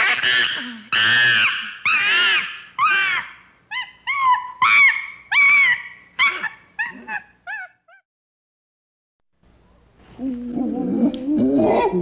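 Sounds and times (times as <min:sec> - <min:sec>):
chimpanzee screaming: 0:00.0 - 0:07.9.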